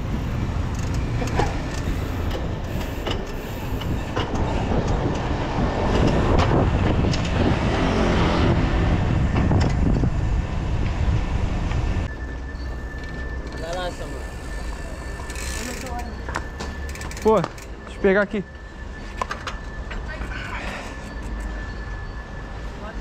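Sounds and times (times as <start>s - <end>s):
wind buffeting microphone: 0.0s - 12.1s
road noise: 0.0s - 23.0s
bicycle clicks and rattles: 0.4s - 7.5s, 12.9s - 18.0s.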